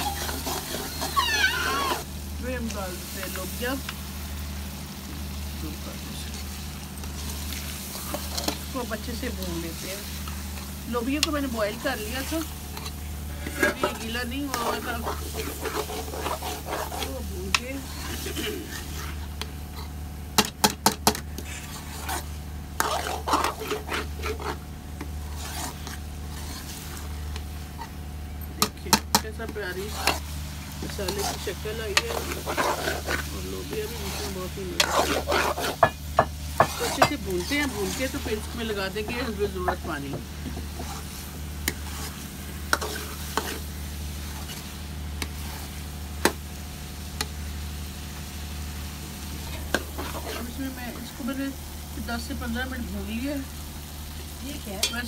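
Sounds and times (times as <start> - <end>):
spoon scraping in a pot: 0.0 - 2.0, 6.3 - 20.0, 21.0 - 28.0, 28.6 - 45.8, 49.4 - 51.1.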